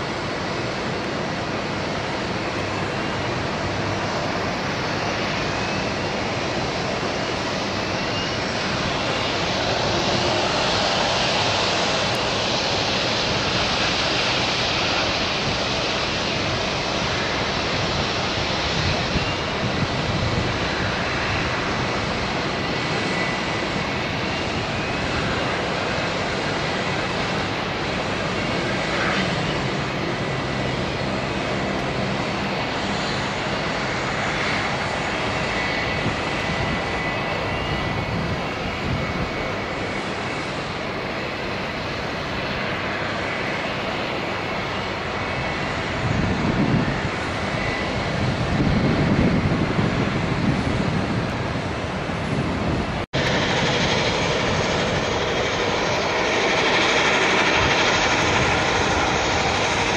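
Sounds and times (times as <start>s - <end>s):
jet engines running: 0.0s - 59.9s.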